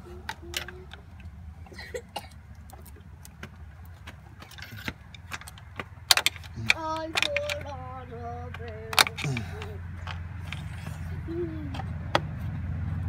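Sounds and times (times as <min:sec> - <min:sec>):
steady low rumble: 0:00.0 - 0:13.0
metal tools clinking on engine parts: 0:04.4 - 0:11.9.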